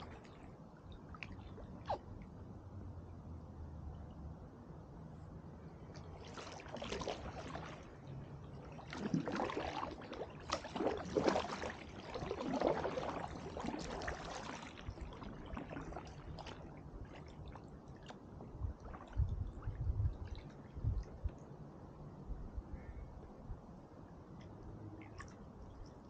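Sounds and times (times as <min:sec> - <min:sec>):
paddle splashing in water: 0:06.0 - 0:21.2.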